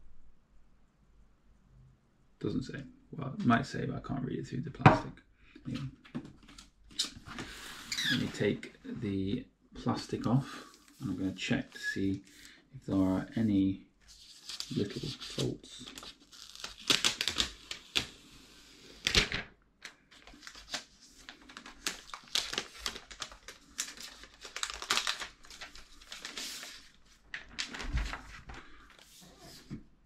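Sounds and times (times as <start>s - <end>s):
plastic film peeling and crinkling: 14.0s - 18.3s, 20.1s - 29.6s.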